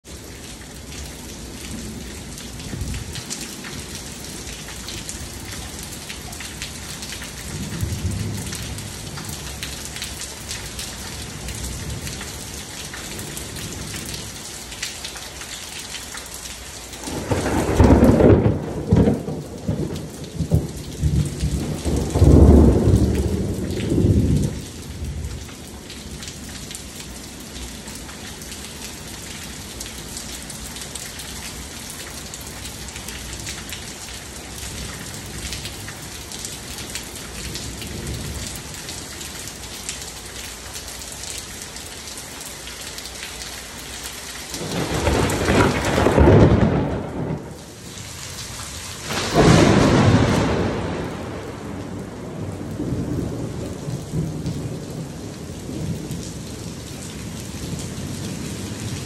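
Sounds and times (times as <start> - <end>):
rain pattering on concrete: 0.0 - 59.0
thunder rumbling: 1.6 - 10.1, 17.0 - 25.4, 44.6 - 48.0, 49.0 - 59.0.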